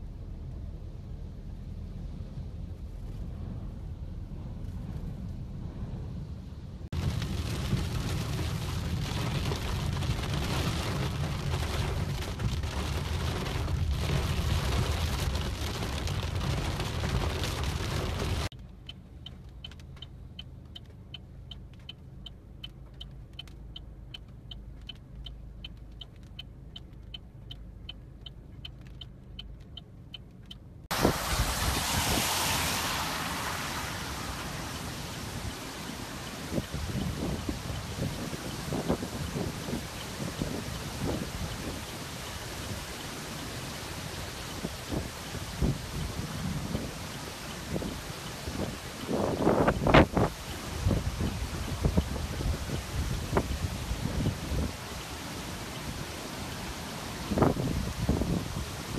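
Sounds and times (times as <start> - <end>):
tyres hissing on wet road: 6.9 - 18.5, 30.9 - 58.9
wind buffeting microphone: 30.9 - 43.0, 44.1 - 54.9, 57.2 - 58.9.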